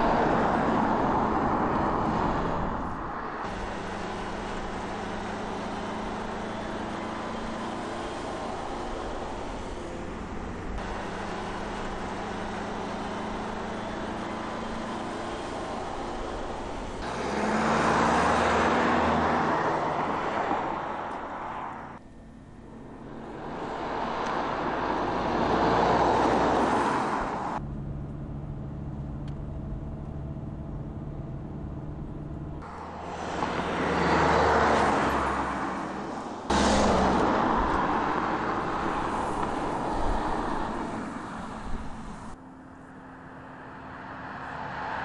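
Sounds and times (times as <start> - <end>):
engine hum inside car cabin: 0.0 - 19.4, 21.0 - 25.5, 27.4 - 43.8
car driving past: 0.0 - 22.0, 32.6 - 42.4.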